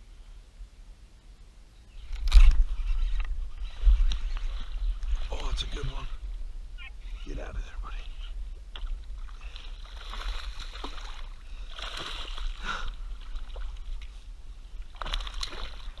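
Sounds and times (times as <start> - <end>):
fish splashing at water surface: 14.9 - 16.0.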